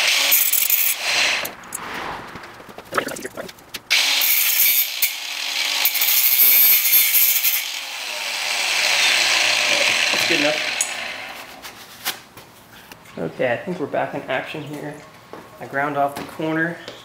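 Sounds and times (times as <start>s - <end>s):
angle grinder grinding metal: 3.9s - 11.5s.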